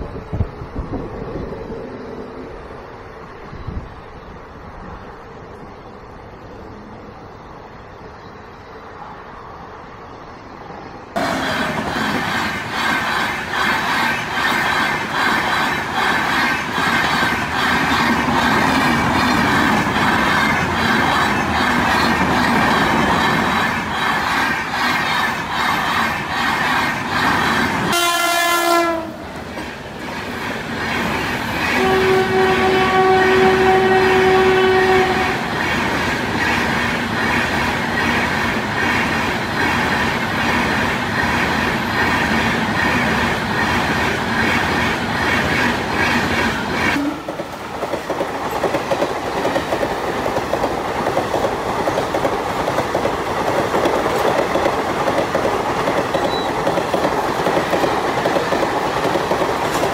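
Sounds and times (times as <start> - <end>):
train coaches rattling past: 0.0 - 59.9
locomotive horn blast: 27.9 - 29.2, 31.8 - 35.4, 47.0 - 47.3
wheels clicking over rail joints: 35.5 - 59.9.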